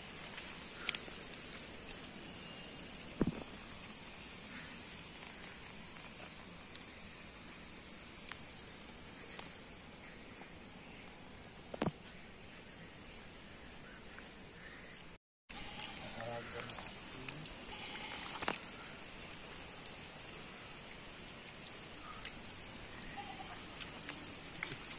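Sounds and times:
faint steady hiss: 0.0s - 24.9s.

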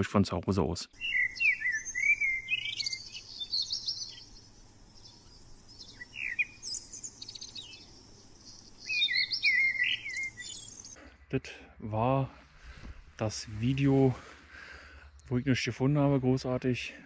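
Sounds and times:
songbirds singing: 0.7s - 11.4s, 12.5s - 17.0s.

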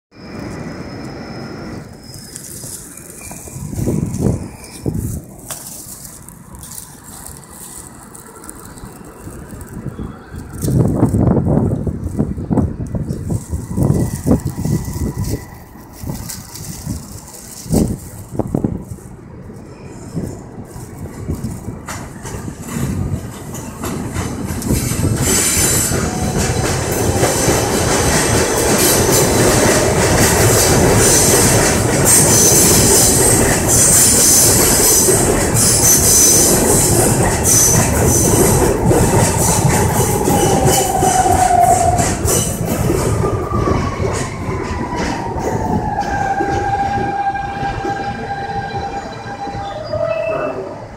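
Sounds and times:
falling whines of braking train: 0.1s - 5.7s, 7.1s - 17.4s, 19.2s - 50.9s
train wheels rumbling on rails: 0.1s - 50.9s
wheel and brake squeal: 0.2s - 5.2s, 32.1s - 38.5s, 44.9s - 50.9s.

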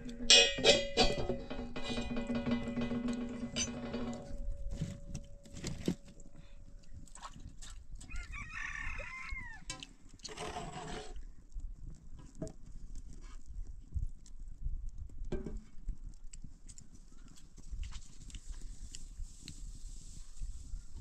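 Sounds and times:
metal kitchenware knocks: 0.1s - 4.5s
rooster crowing: 8.1s - 9.7s.

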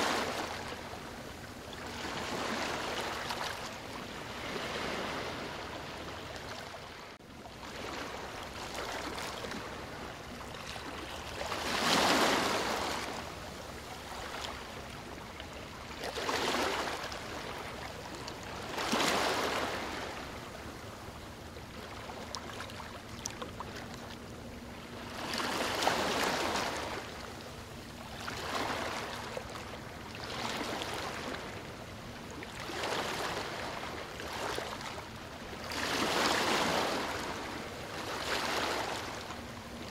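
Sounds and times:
small waves lapping shore: 0.0s - 39.9s.

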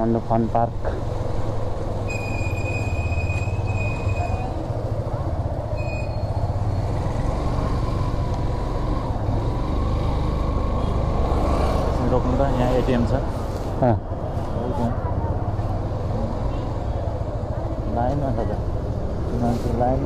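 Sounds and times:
motorcycle engine rumbling: 0.0s - 13.1s.

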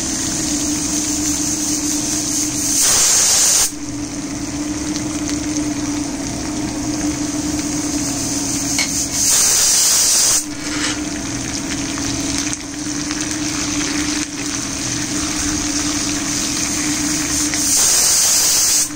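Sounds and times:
loud bright sizzle: 0.0s - 18.9s
spices sizzling in hot oil: 0.0s - 18.9s
steady low hum: 10.4s - 17.6s.

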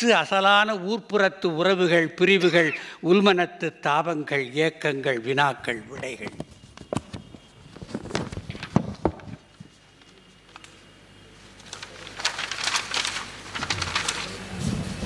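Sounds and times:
paper rustling and crinkling: 6.0s - 10.8s, 11.4s - 15.0s.

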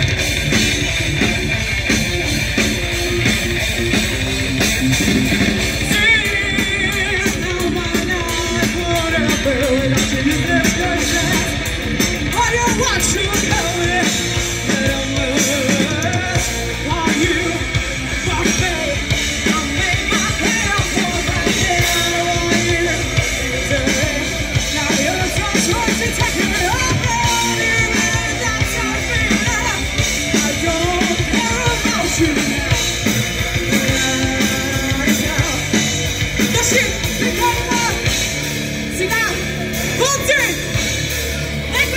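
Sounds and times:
live rock band playing: 0.0s - 41.9s.

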